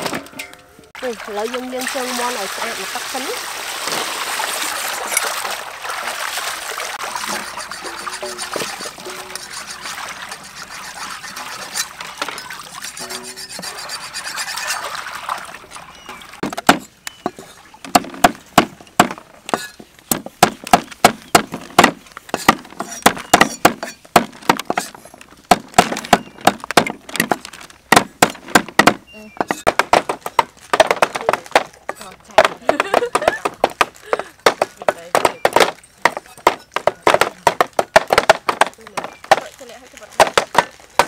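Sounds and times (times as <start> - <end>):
water sloshing in metal basin: 0.0 - 20.0
cleaver chopping on wooden block: 16.4 - 24.9, 25.5 - 31.7, 32.4 - 39.4.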